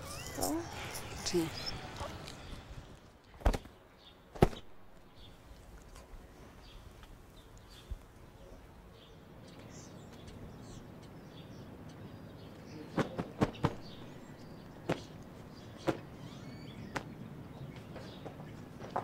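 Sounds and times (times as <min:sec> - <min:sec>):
faint bird chirps: 0:13.6 - 0:18.6.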